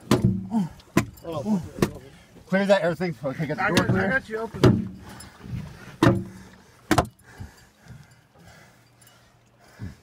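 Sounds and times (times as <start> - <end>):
heavy knocks on boat: 0.0 - 1.2, 3.7 - 5.0, 6.0 - 7.2.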